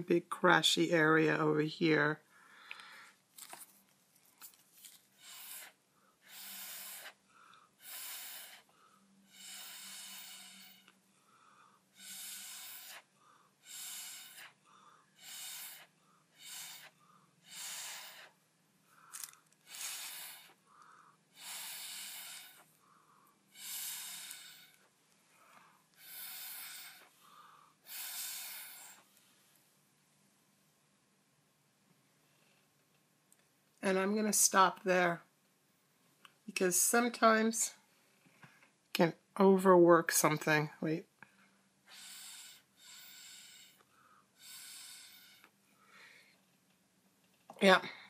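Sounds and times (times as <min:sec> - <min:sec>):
breath blown through a straw: 0:05.2 - 0:07.2, 0:07.8 - 0:11.0, 0:11.6 - 0:14.6, 0:15.2 - 0:18.4, 0:19.0 - 0:20.6, 0:21.3 - 0:22.8, 0:23.5 - 0:24.9, 0:26.0 - 0:29.1, 0:41.9 - 0:43.8, 0:44.4 - 0:45.5.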